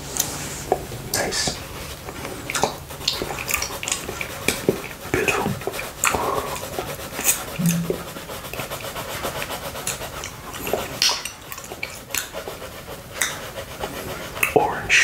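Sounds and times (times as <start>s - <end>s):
pencil scratching on paper: 2.7s - 15.0s
tongue licking glass: 7.2s - 8.8s.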